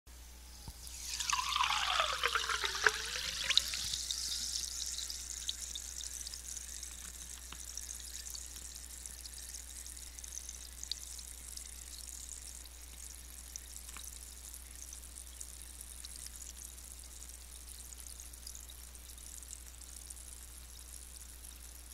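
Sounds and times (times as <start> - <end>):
seltzer pouring into glass: 0.8 - 7.1
bubbles fizzing: 0.8 - 9.6.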